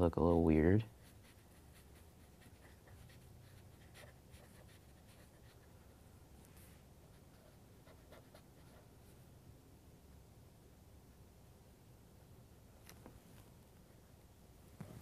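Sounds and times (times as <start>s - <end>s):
felt-tip marker scratching paper: 0.9s - 5.7s, 7.2s - 8.9s.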